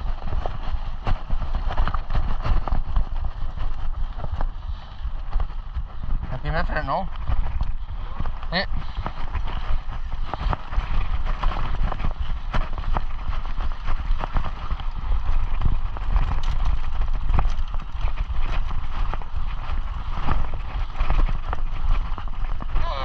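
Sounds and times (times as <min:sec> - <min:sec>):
bike rattling and knocking: 0:00.0 - 0:23.0
bike tyres rumbling on dirt: 0:00.0 - 0:23.0
wind rumble on microphone: 0:00.0 - 0:23.0.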